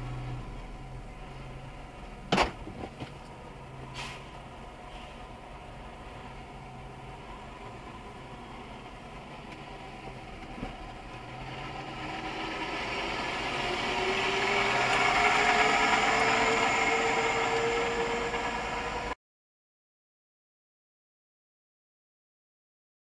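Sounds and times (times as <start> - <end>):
fire truck driving past: 3.2 - 19.2.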